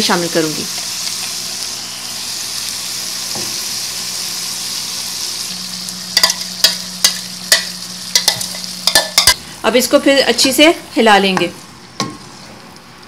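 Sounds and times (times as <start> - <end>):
chicken sizzling in a pan: 0.0 - 9.6.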